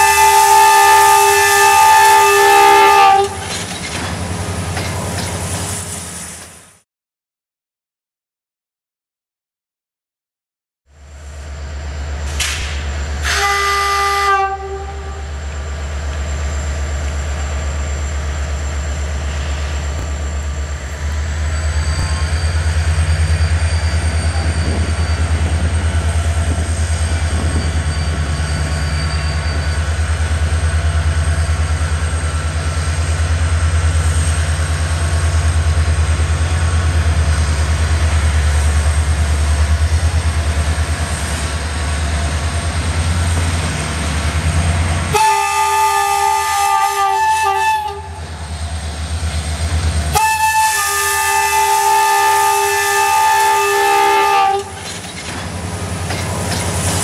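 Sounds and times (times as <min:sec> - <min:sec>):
locomotive horn blast: 0:00.0 - 0:03.5, 0:13.2 - 0:15.3, 0:45.1 - 0:48.3, 0:50.1 - 0:54.8.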